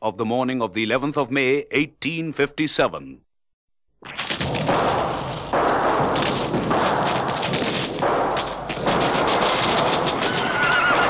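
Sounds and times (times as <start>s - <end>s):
gunfire crackle: 4.0s - 11.0s.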